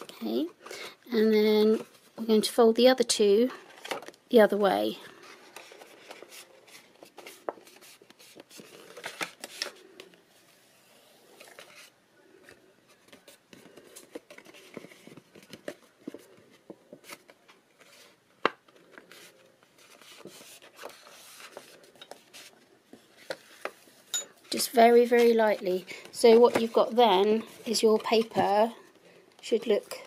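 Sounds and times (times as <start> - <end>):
paper rustling and crackling: 5.1 - 10.2, 11.3 - 23.9.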